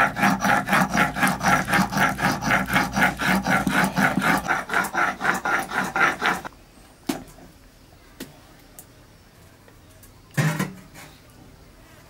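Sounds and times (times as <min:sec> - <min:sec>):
stone roller grinding on stone: 0:00.0 - 0:06.5.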